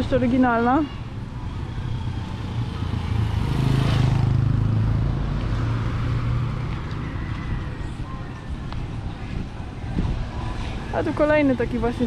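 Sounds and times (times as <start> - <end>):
vehicle engine hum passing: 0.8 - 12.0.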